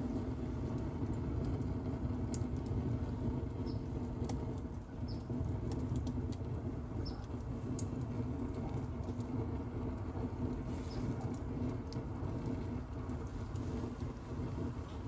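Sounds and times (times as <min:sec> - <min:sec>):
fire crackling and popping: 0:00.0 - 0:15.0.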